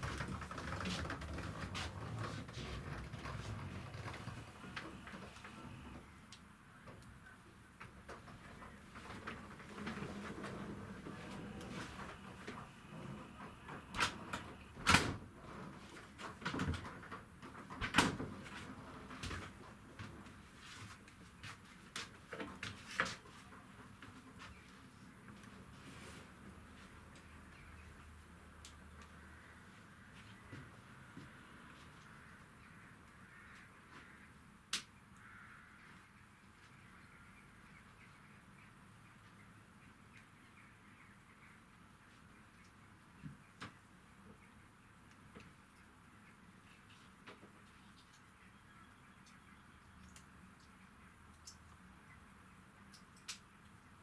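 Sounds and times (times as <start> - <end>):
faint bird calls: 28.8 - 34.4, 35.0 - 38.5.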